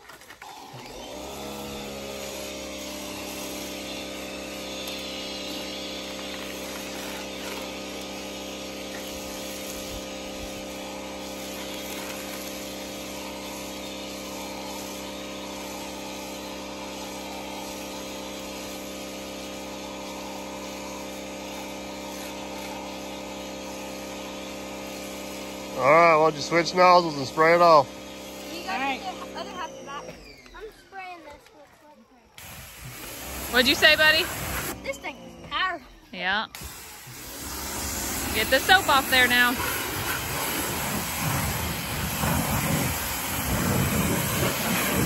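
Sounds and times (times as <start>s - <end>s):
pressure washer motor humming: 0.0s - 31.1s, 32.4s - 45.0s
water spray hissing: 1.2s - 29.5s, 32.4s - 35.0s, 36.5s - 45.0s.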